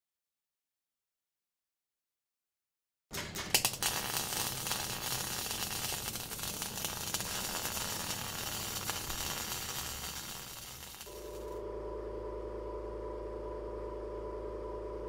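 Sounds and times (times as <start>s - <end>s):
arc welding sizzling and crackling: 3.2s - 11.6s
electrical hum: 3.2s - 15.0s.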